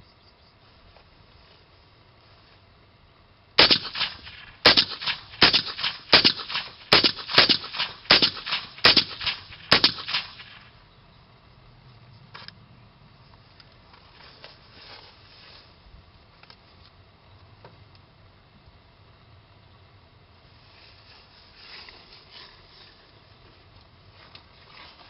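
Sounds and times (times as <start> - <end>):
suppressed rifle shots with echo: 3.6 - 10.7.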